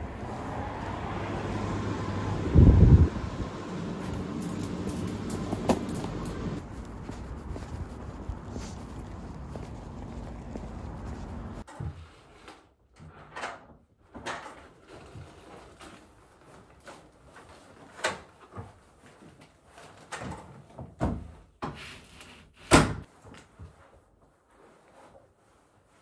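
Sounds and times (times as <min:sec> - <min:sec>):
knocks and clatters: 0:04.0 - 0:06.6.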